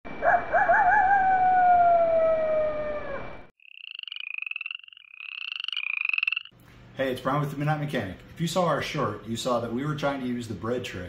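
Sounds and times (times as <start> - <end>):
wolf howling: 0.2 - 3.5.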